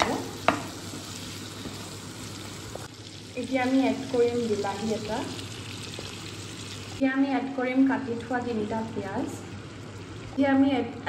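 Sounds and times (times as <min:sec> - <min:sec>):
meat sizzling in hot oil: 0:00.0 - 0:07.0.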